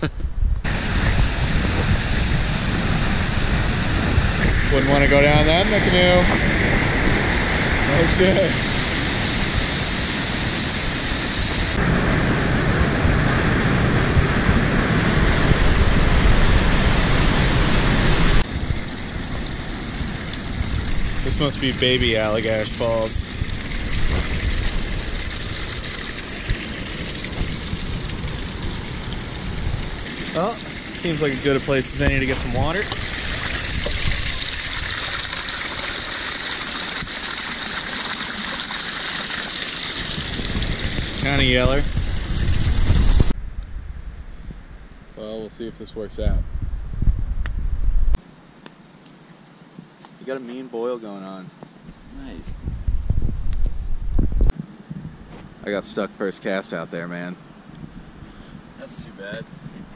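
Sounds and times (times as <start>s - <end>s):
waterfall rushing over rock: 0.7s - 43.3s
stream running over rock: 0.9s - 11.8s, 13.1s - 43.3s
water splashing into metal pot: 23.3s - 40.7s.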